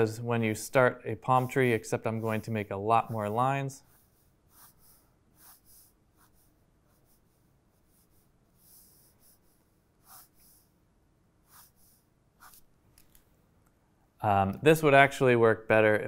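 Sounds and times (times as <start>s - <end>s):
pen scratching on paper: 1.2s - 10.7s, 11.4s - 12.7s.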